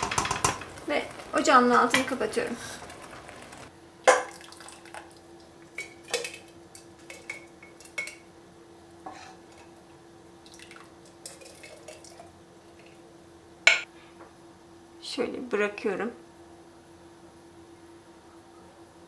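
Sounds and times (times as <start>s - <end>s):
metal ladle knocking on pot: 0.0s - 0.7s.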